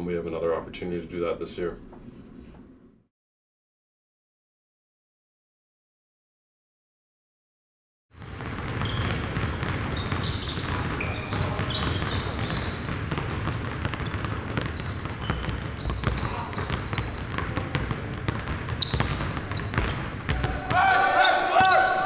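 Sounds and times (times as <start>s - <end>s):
basketballs bouncing: 8.2s - 22.0s
sneaker squeaks: 8.4s - 22.0s.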